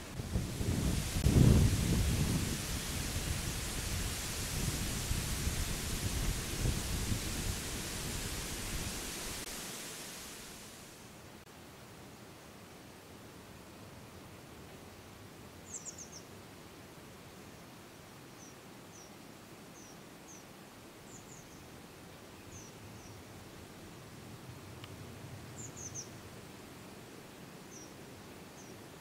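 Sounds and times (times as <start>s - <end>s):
wind rushing: 0.0s - 10.6s
small bird chirping: 15.7s - 16.3s, 25.6s - 26.2s.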